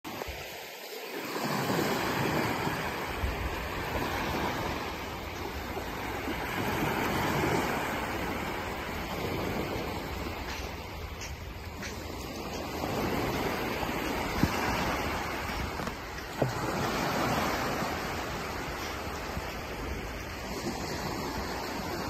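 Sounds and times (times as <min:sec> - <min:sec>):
waves washing onto sand: 0:00.1 - 0:22.0.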